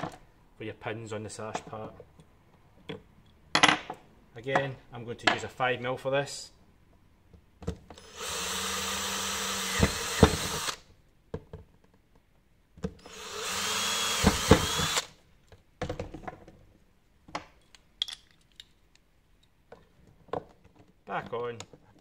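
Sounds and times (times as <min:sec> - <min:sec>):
cordless drill whine: 0:08.0 - 0:10.8, 0:13.0 - 0:15.1.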